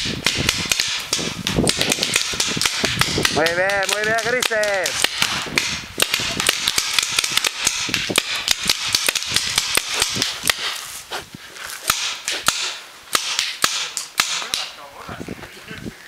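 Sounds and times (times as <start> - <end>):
paintball markers firing: 0.0 - 10.8.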